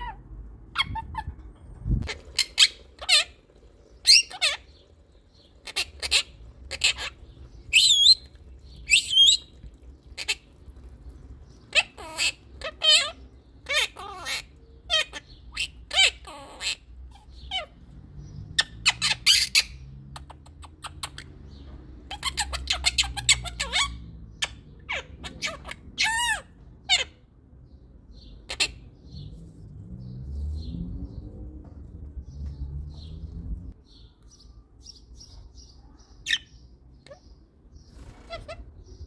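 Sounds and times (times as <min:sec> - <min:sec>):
parrot calls and chatter: 0:00.0 - 0:39.0.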